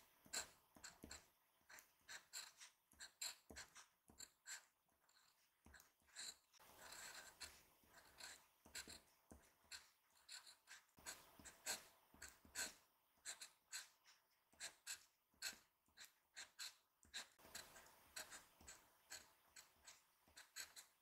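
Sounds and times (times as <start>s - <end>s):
glass pen scratching on paper: 0.2s - 21.0s.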